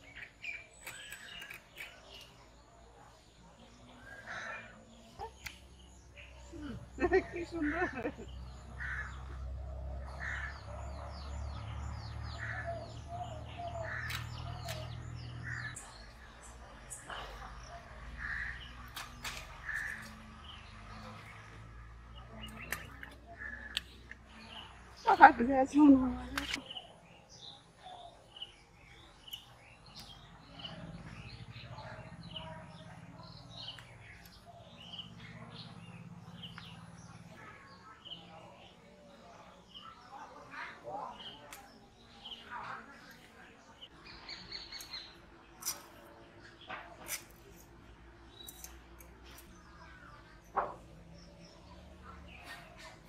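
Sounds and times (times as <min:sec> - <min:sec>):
small birds chirping: 0:00.0 - 0:53.0
crows cawing: 0:08.8 - 0:09.4, 0:10.2 - 0:10.6, 0:18.2 - 0:18.7, 0:19.6 - 0:20.1.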